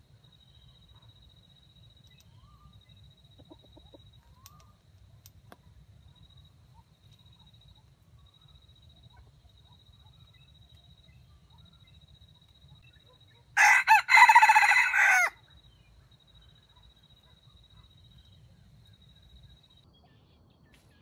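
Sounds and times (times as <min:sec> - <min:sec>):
faint junglefowl clucks: 0:02.8 - 0:04.7.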